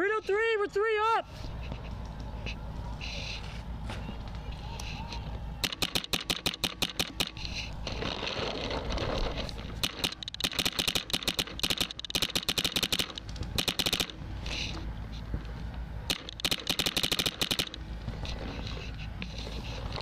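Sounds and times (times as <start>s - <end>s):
paintball marker firing bursts: 5.6s - 7.7s, 9.7s - 14.2s, 16.1s - 17.8s.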